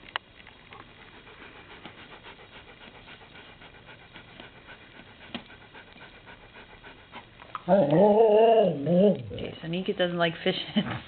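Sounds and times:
dog panting: 0:00.7 - 0:07.8.

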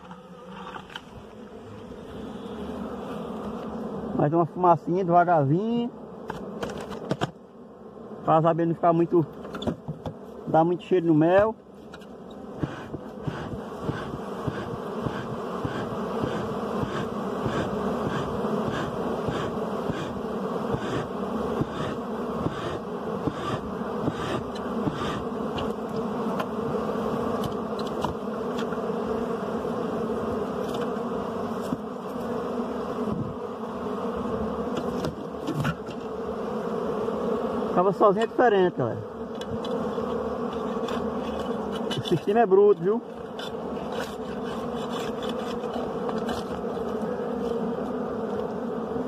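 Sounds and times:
bees buzzing: 0:00.0 - 0:49.0.

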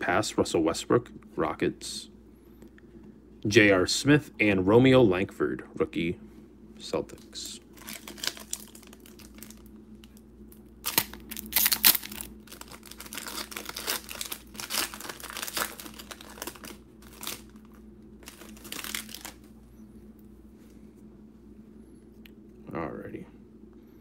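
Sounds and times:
wrapper crinkling: 0:07.7 - 0:10.2, 0:10.8 - 0:19.6
foil pack tearing: 0:07.8 - 0:09.7, 0:10.8 - 0:19.5.

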